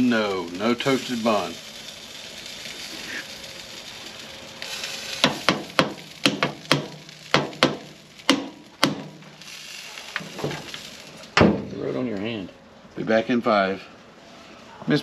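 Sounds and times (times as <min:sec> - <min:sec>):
burger patties sizzling: 0:00.0 - 0:12.0
brush tapping metal grill grates: 0:04.7 - 0:09.3.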